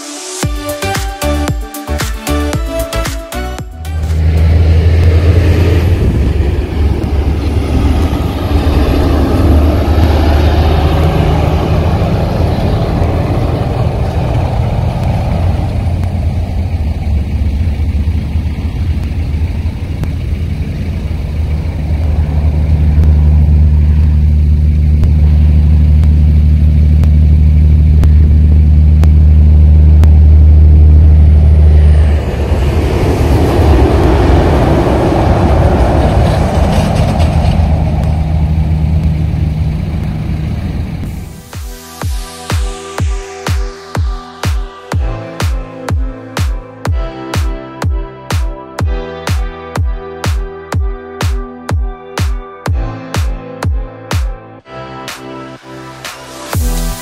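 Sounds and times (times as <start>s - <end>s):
vehicle engine and road rumble: 0.0s - 57.0s.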